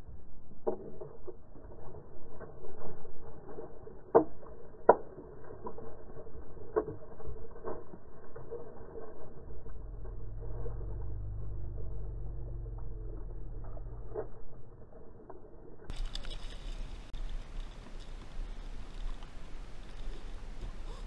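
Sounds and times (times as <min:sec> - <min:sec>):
water splashing: 0:15.9 - 0:21.0.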